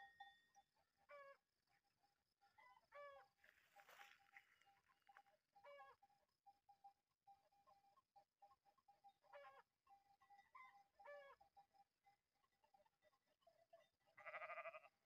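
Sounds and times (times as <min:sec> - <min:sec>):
faint farm animal calls: 0:01.0 - 0:01.4, 0:02.6 - 0:06.2, 0:08.8 - 0:11.7, 0:12.7 - 0:15.0.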